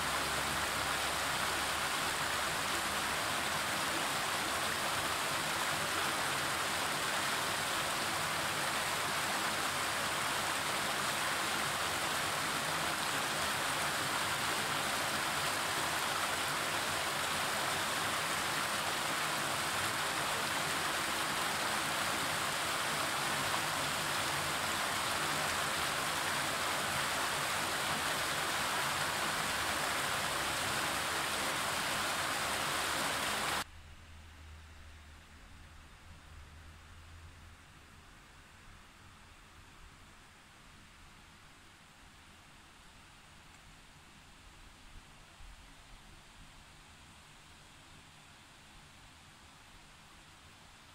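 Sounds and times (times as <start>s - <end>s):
water rushing over rocks: 0.0s - 33.7s.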